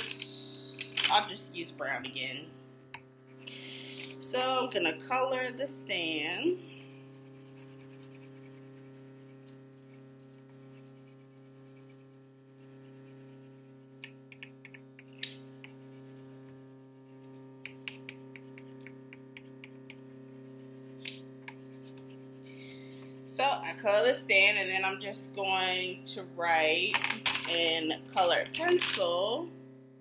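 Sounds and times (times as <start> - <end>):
refrigerator hum: 0.0 - 30.0
crayon scratching on paper: 3.3 - 22.5.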